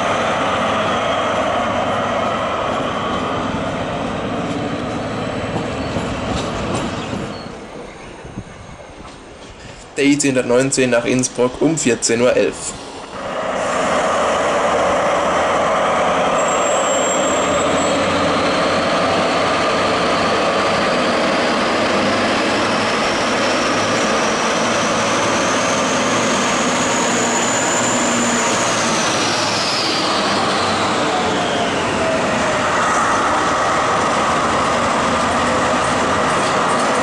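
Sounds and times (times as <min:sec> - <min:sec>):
diesel locomotive engine noise: 0:00.0 - 0:37.0
rising engine whine: 0:12.6 - 0:37.0.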